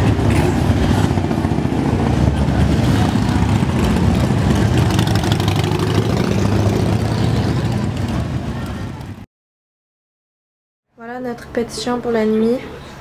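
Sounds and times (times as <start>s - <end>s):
motorcycles riding past: 0.0s - 9.2s.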